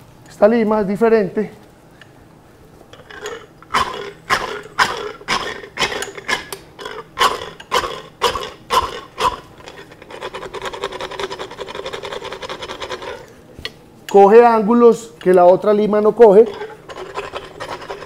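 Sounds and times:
dental file rasping teeth: 0:03.0 - 0:13.3, 0:16.3 - 0:18.0.

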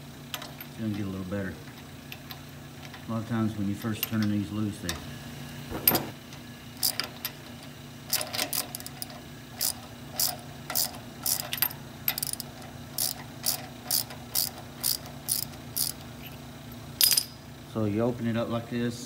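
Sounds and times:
hand ratchet clicking: 0:08.1 - 0:16.0.

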